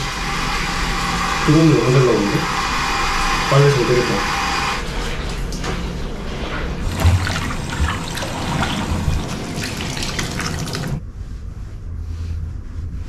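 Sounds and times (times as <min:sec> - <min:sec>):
water running from a tap: 0:06.8 - 0:11.0.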